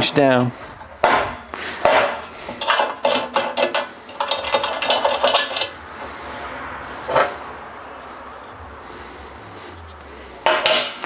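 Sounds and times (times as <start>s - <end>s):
steel parts clinking and clattering: 0.4s - 7.4s, 10.4s - 11.0s.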